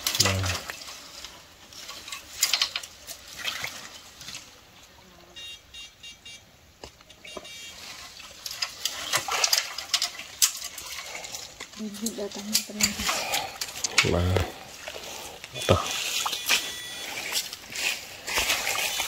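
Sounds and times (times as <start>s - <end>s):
water splashing: 0.0s - 4.7s, 7.4s - 19.0s
dry leaves and bamboo rustling: 0.0s - 5.0s, 6.8s - 19.0s
faint high chirping: 15.5s - 17.4s.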